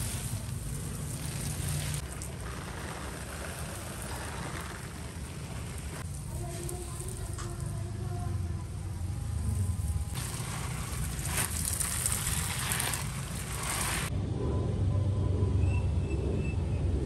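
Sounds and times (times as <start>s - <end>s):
water spray on leaves: 0.0s - 7.8s, 9.3s - 14.1s.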